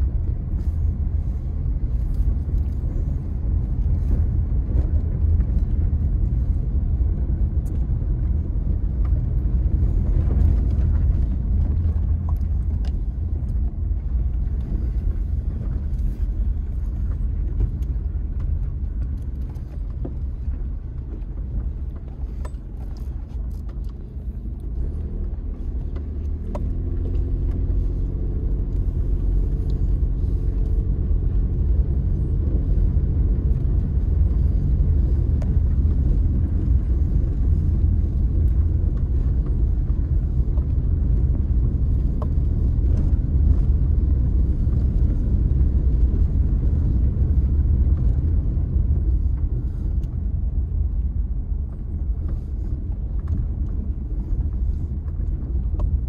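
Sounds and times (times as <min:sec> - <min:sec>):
car rumbling on dirt road: 0:00.0 - 0:56.0
engine hum: 0:00.0 - 0:56.0.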